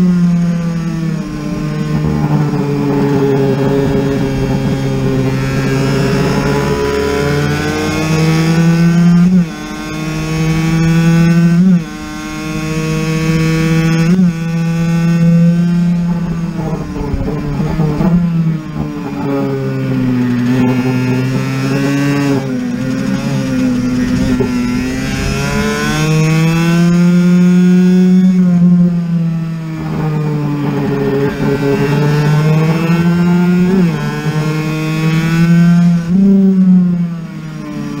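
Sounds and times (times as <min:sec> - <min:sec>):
two-stroke engine racing: 0:00.0 - 0:38.0.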